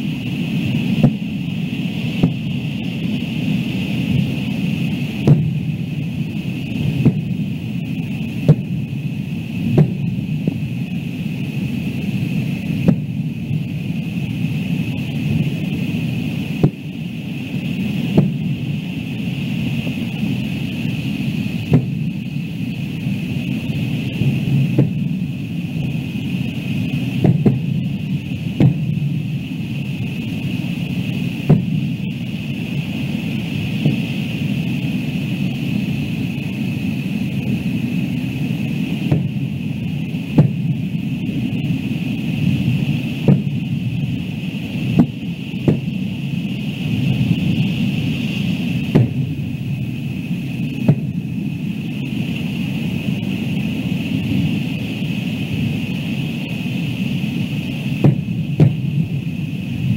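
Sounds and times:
faint high hum: 0.0s - 59.9s
steady low rumble: 0.0s - 59.9s
fireworks shells bursting: 21.2s - 34.7s, 38.9s - 41.2s.

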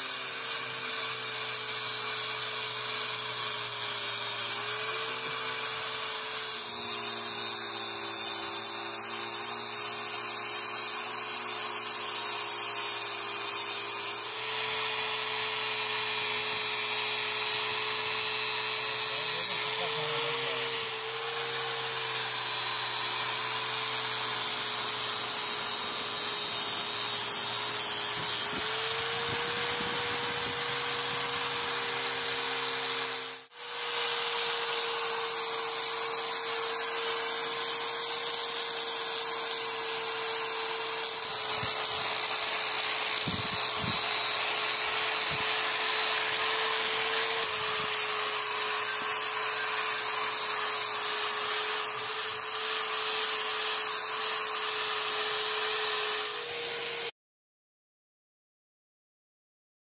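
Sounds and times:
angle grinder grinding steel: 0.0s - 57.2s.

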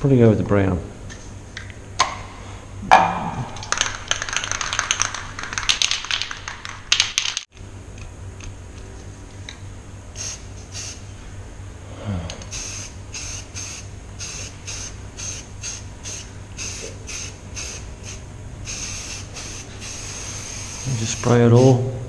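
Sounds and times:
spray can mixing ball rattling: 3.6s - 7.5s
short hisses of spray: 12.5s - 21.0s.

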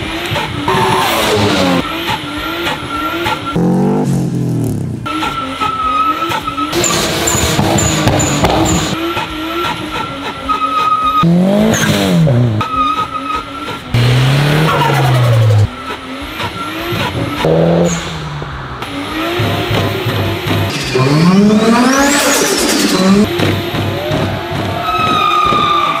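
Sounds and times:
car engines revving: 0.0s - 26.0s
tyre squeal: 0.4s - 3.6s, 5.1s - 13.9s, 14.6s - 18.0s, 24.8s - 26.0s.

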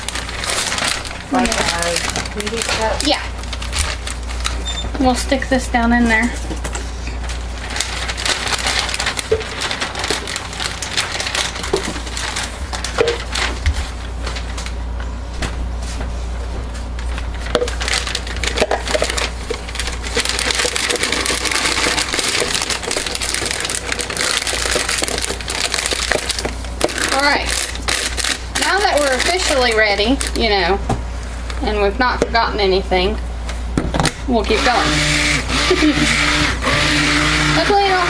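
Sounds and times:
plastic bag crinkling: 0.0s - 4.8s, 7.2s - 15.0s, 16.8s - 30.6s
plastic crackles: 0.0s - 5.3s, 6.1s - 15.0s, 16.8s - 30.6s.

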